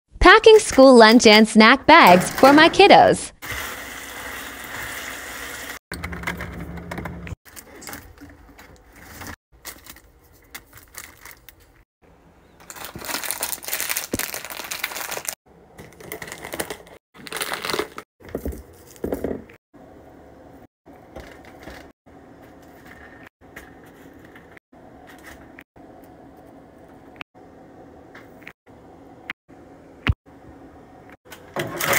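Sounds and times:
plastic wrappers crinkling: 9.0 - 11.8, 12.6 - 18.0.

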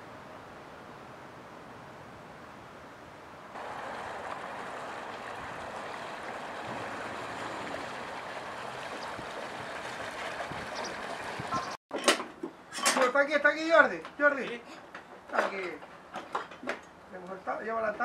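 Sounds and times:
water and wind hiss: 0.0 - 11.8
faint outboard motor: 3.6 - 11.8.

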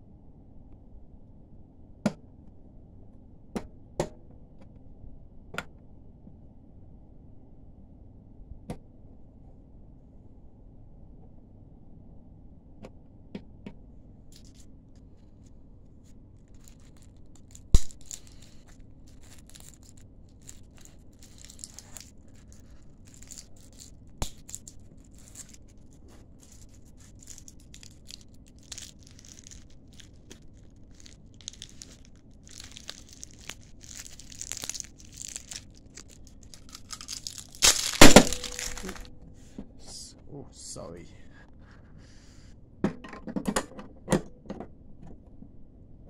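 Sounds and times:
faint rustling and crackling: 14.3 - 40.1.

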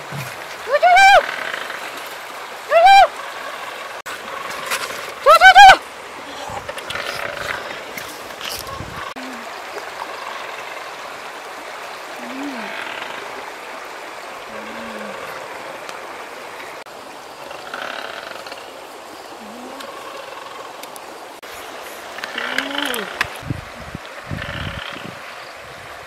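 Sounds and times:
flowing river water: 0.0 - 26.0
short low calls: 22.3 - 23.3.

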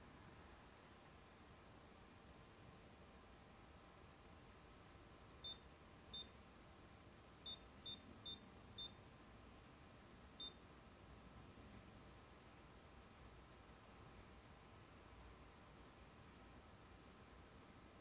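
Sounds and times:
short high beeps: 7.5 - 9.0.

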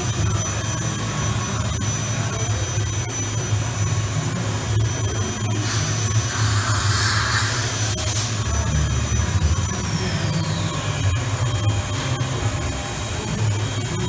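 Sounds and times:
machine low hum and whine: 0.0 - 14.0
rushing hiss: 5.6 - 8.4.

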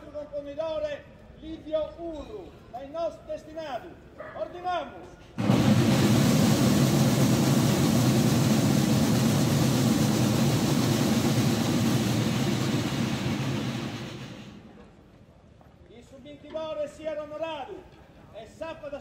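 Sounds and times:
field drums rolling: 5.4 - 14.8.

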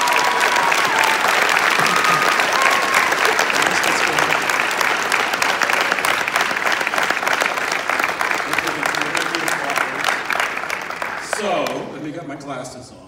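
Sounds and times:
short cheers: 0.0 - 4.5
audience applauding: 0.0 - 12.2.

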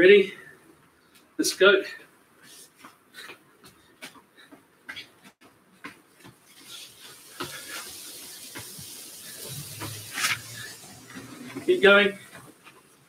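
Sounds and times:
steady hiss: 6.4 - 13.0.

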